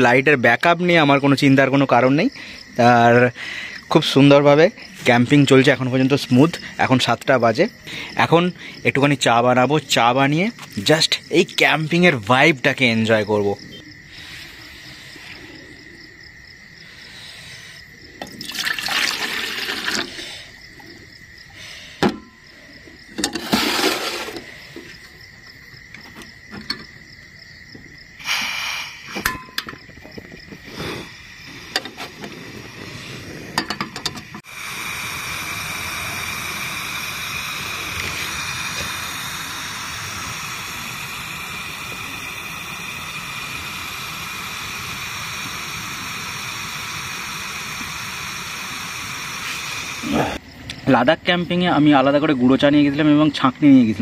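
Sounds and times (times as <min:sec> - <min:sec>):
stove burner hissing: 0:01.1 - 0:50.8
water pouring into metal pot: 0:18.2 - 0:20.2
clicks and metal knocks: 0:25.9 - 0:27.0, 0:29.2 - 0:30.3, 0:33.6 - 0:34.4.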